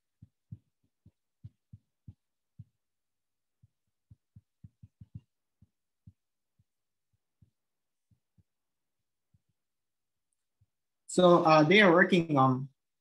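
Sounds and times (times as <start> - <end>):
stylus tapping tablet screen: 0.0 - 9.7.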